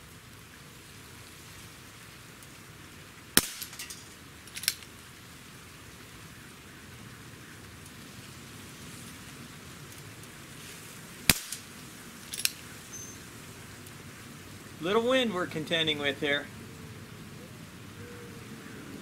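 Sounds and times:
air revolver pop: 3.4s - 3.9s, 11.3s - 11.7s
small clicks: 12.3s - 12.6s.

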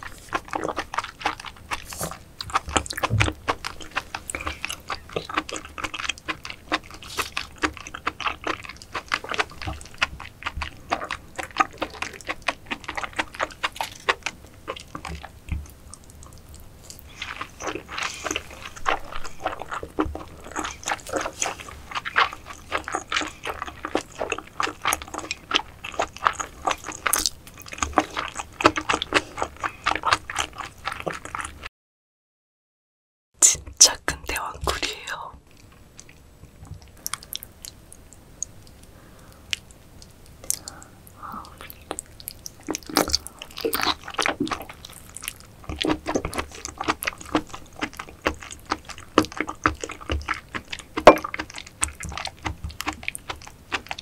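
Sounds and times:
wet chewing and mouth smacking: 0.0s - 31.7s, 33.6s - 54.0s.

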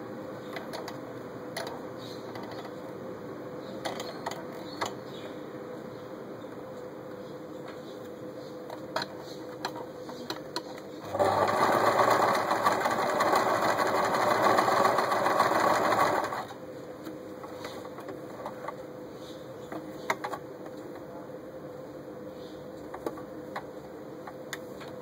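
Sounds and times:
faint steady hum: 0.0s - 25.0s
sewing machine stitching: 11.0s - 16.5s.

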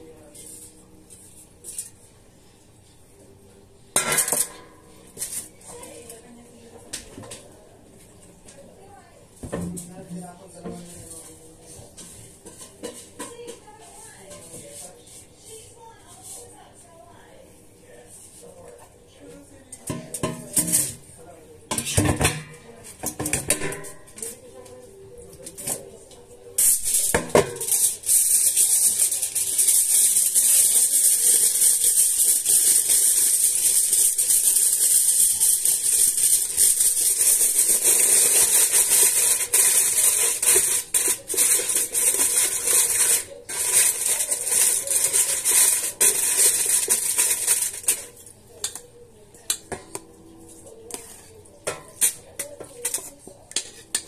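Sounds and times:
aluminium foil crinkling: 26.6s - 48.7s.

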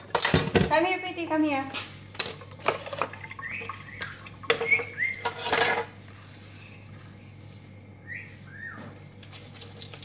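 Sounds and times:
dishes clattering on stone counter: 4.4s - 6.0s.

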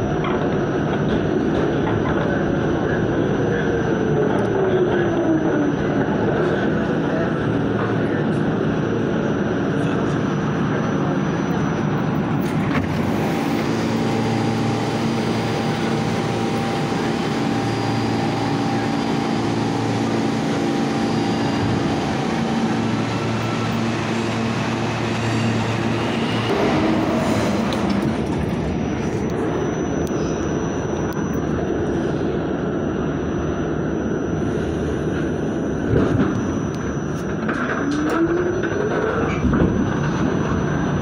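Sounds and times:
continuous hum: 0.0s - 41.0s
wheels rumbling on rail: 5.8s - 32.6s.

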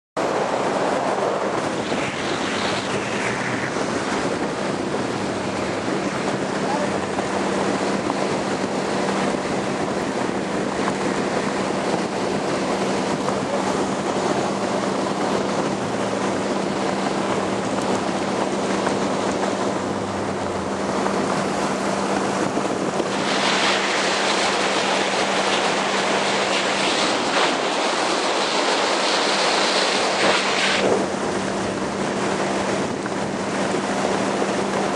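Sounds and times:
boat engine hum: 0.2s - 34.9s
water rushing past boat hull: 0.2s - 34.9s
wind buffeting microphone: 0.2s - 34.9s.

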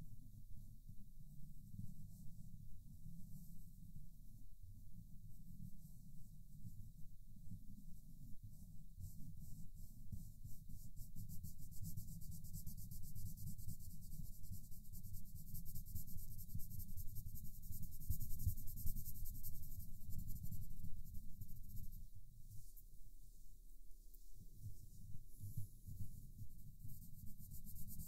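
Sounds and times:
pencil scratching on paper: 26.8s - 28.0s.

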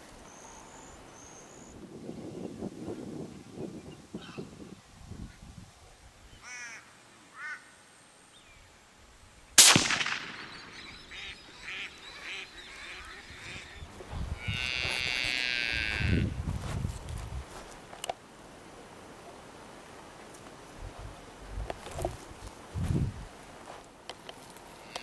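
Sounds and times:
faint chirping calls: 0.0s - 2.5s, 10.2s - 14.6s
gunshot with ringing tail: 9.6s - 11.1s
loud nasal animal cry: 14.4s - 16.2s.

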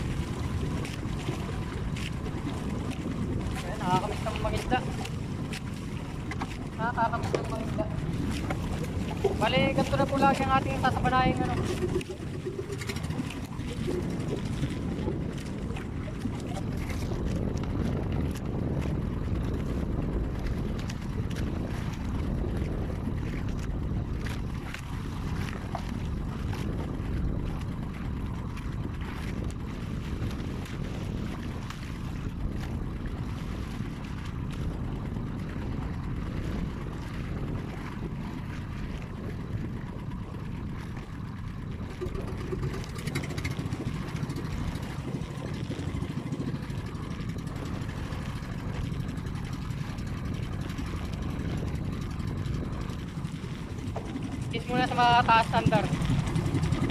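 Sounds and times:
boat engine low rumble: 0.0s - 56.9s.

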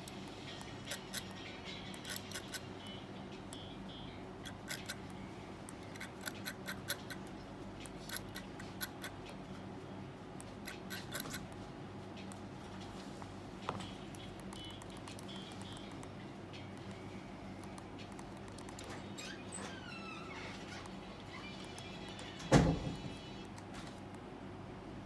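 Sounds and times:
tweezers tapping coil clicks: 14.0s - 16.8s.

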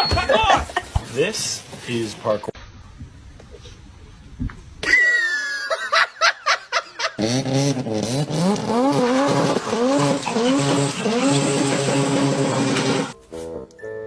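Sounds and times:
racing car engine accelerating: 7.2s - 13.2s.

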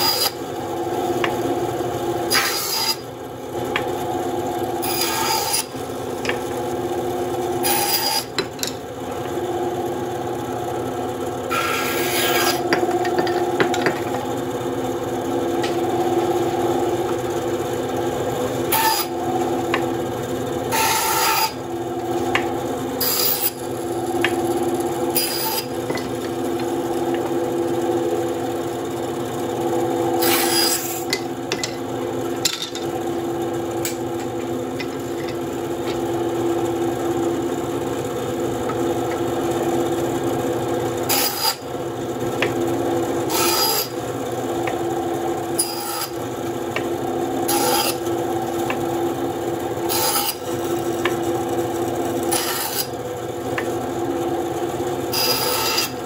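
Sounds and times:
bandsaw cutting wood: 0.0s - 0.4s, 2.2s - 3.1s, 4.7s - 6.5s, 7.5s - 8.4s, 11.5s - 13.7s, 18.6s - 19.8s, 20.7s - 27.3s, 30.1s - 31.3s, 41.0s - 41.7s, 43.2s - 44.0s, 45.4s - 48.8s, 49.6s - 51.2s, 52.1s - 53.0s, 55.1s - 56.0s
bandsaw humming: 0.0s - 56.0s.

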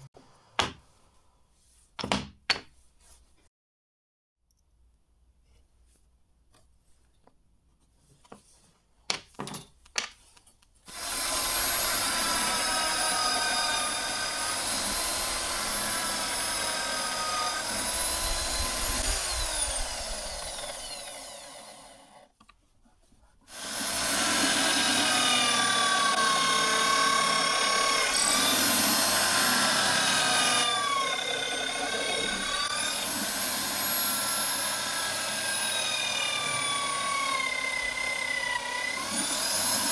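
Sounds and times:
drill press boring into wood: 10.9s - 22.3s, 23.5s - 39.9s.

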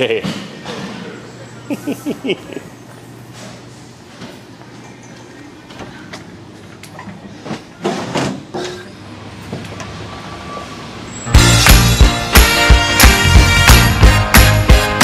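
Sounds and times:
street traffic noise: 8.4s - 14.1s
loud music: 11.3s - 15.0s.

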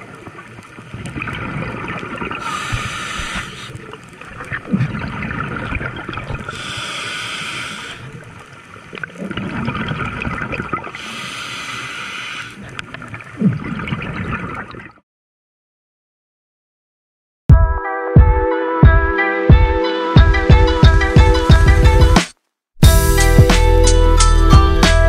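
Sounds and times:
gurgling exhaled bubbles: 0.0s - 8.3s, 8.9s - 11.8s, 12.4s - 15.0s
regulator inhale hissing: 2.4s - 3.8s, 6.5s - 8.1s, 11.0s - 12.6s.

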